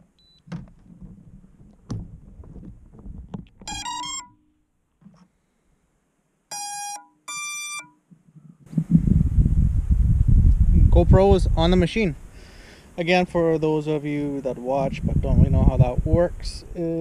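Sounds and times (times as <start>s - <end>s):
handling knocks: 0.4s - 4.2s
electronic beeps: 3.7s - 4.4s.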